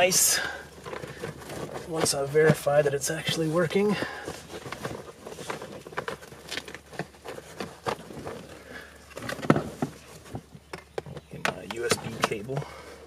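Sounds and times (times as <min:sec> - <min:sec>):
cables rustling against plastic: 0:00.0 - 0:13.0.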